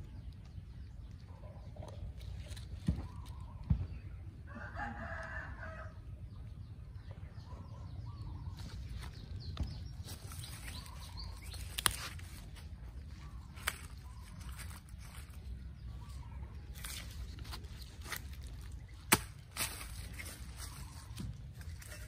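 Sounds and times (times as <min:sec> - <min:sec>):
rooster crowing: 0:04.5 - 0:06.0.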